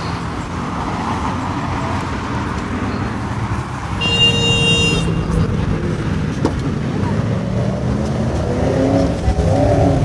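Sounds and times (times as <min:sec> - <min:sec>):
road traffic rumble: 0:00.0 - 0:10.0
car horn: 0:04.0 - 0:05.4.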